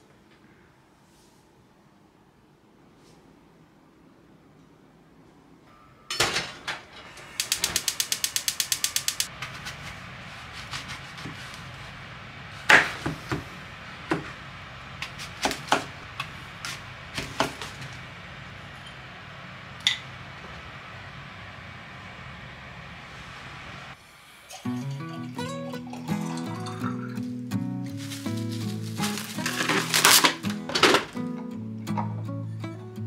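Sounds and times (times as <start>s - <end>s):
gas flame hum: 6.1s - 32.8s
gas hob igniter clicking: 7.2s - 9.4s.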